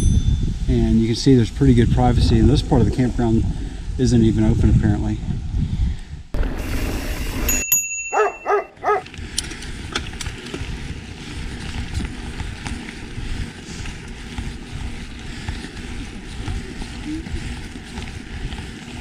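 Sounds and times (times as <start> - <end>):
low rumble: 0.0 - 7.5
dog barking: 8.1 - 9.0.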